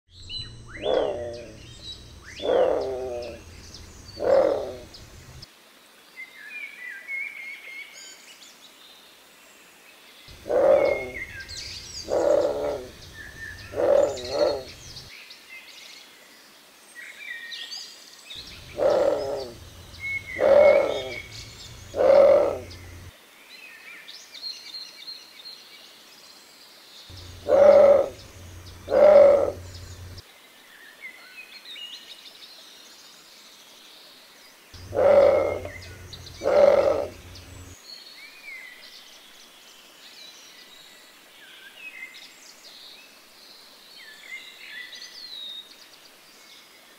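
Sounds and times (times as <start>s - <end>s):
small birds chirping faintly: 0.1s - 46.9s
heron loud deep calls: 0.8s - 5.4s, 10.3s - 15.1s, 18.4s - 23.1s, 27.1s - 30.2s, 34.8s - 37.8s.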